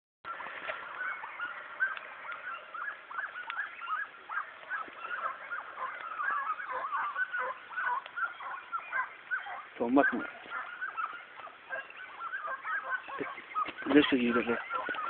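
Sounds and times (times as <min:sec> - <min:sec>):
hounds yelping: 0:00.3 - 0:15.0.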